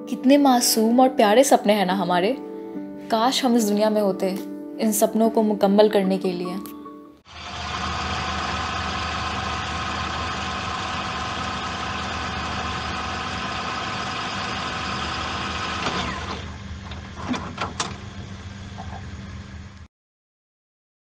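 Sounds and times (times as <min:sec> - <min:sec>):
engine idling: 0:07.3 - 0:19.9.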